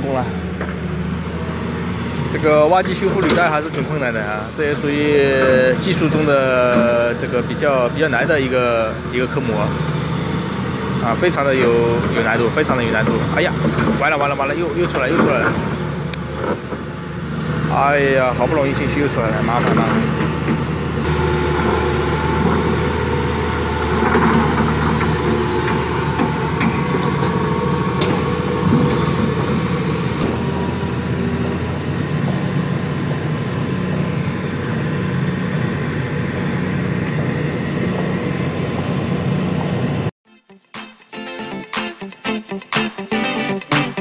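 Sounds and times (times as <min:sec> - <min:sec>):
excavator diesel engine running: 0:00.0 - 0:40.1
thin steady whine: 0:16.0 - 0:31.9.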